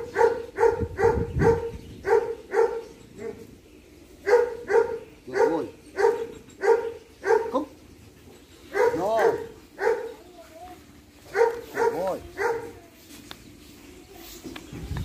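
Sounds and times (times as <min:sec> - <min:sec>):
dog barking: 0:00.0 - 0:03.4, 0:04.2 - 0:07.6, 0:08.7 - 0:10.2, 0:11.3 - 0:12.8.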